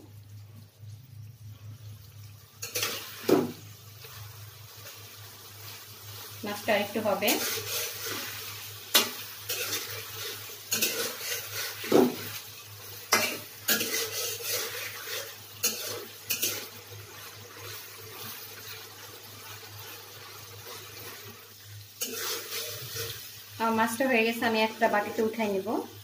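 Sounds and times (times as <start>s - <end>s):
frying sizzle: 0.0s - 26.0s
metal spatula scraping pan: 2.6s - 3.5s, 7.0s - 12.4s, 13.0s - 18.4s, 22.0s - 23.3s.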